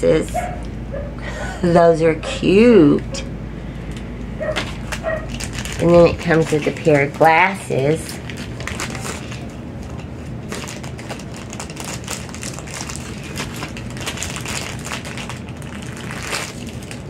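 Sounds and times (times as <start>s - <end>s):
plastic packaging crinkling: 4.4s - 17.0s.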